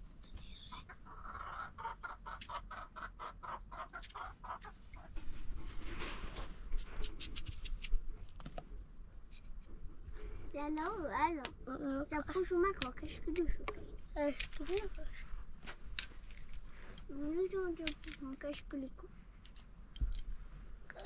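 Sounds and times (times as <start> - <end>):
hen clucking: 0.8 - 5.2.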